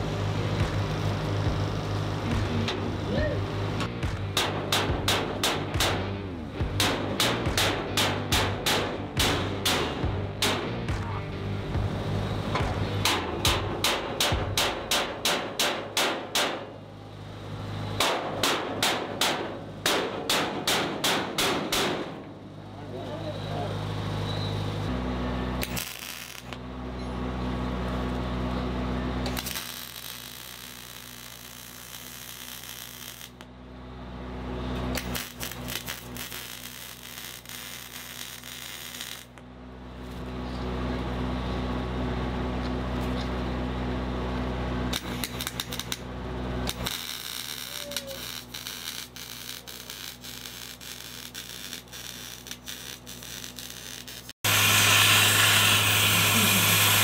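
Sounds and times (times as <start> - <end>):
steady low hum: 0.0 - 15.3
arc welding crackling: 25.5 - 26.6, 29.2 - 33.5, 34.7 - 39.4, 44.9 - 57.0.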